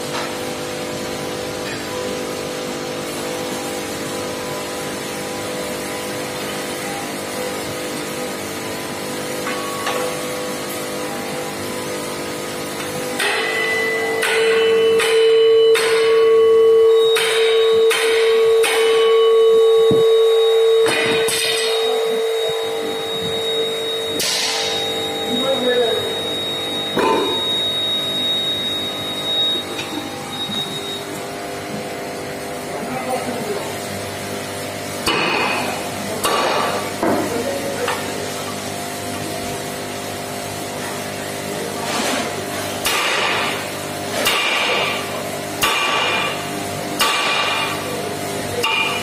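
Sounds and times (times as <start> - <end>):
machine humming: 0.0 - 41.7
metallic clangs of steel struck: 13.1 - 16.4, 17.1 - 19.3, 20.8 - 22.0, 24.1 - 25.0, 26.9 - 27.6, 42.8 - 46.4, 47.0 - 47.8, 48.6 - 49.0.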